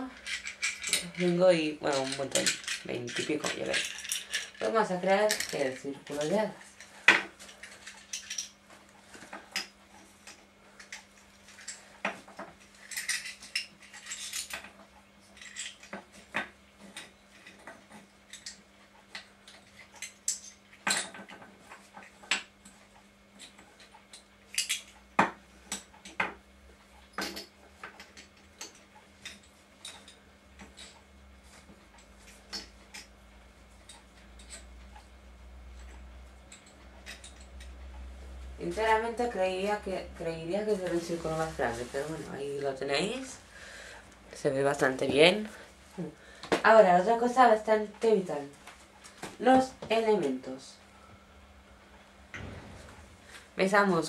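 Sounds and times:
seashells clicking and clinking: 0.0s - 6.4s, 7.5s - 8.6s
faint steady hum: 0.0s - 54.0s.

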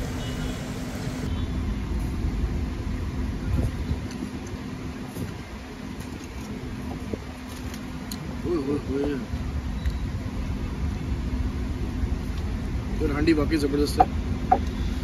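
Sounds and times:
restaurant room rumble: 0.0s - 1.3s.

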